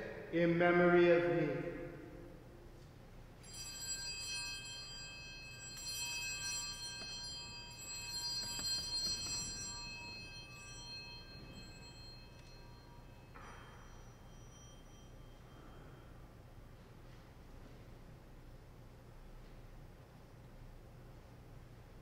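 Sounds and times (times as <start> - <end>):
altar bells ringing: 3.4 - 17.1.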